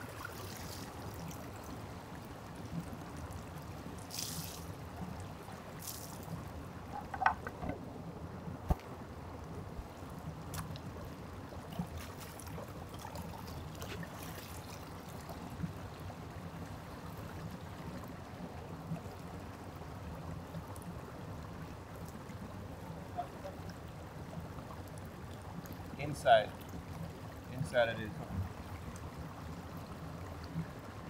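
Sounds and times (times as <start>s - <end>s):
stream running over rocks: 0.0s - 31.0s
faint taps and knocks: 6.9s - 7.8s.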